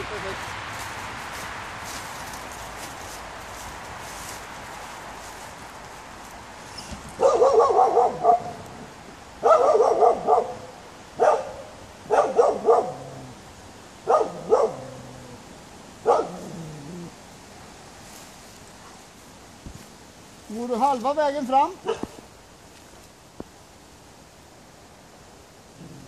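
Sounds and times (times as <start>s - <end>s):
dog barking: 7.2s - 8.6s, 9.4s - 13.1s, 14.1s - 15.0s, 16.0s - 16.5s, 21.8s - 22.2s.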